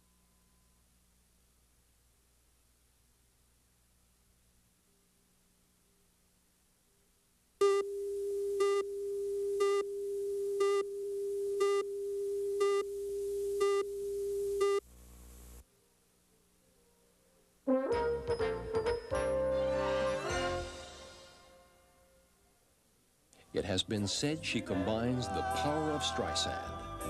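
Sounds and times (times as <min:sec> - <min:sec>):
steady test tone: 0:07.6 - 0:14.8
short beeps: 0:13.6 - 0:14.8
music: 0:17.7 - 0:22.4, 0:24.1 - 0:27.0.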